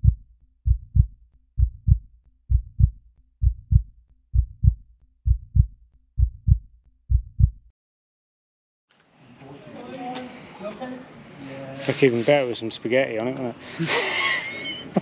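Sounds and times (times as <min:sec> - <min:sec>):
heartbeat thumps: 0:00.0 - 0:07.7.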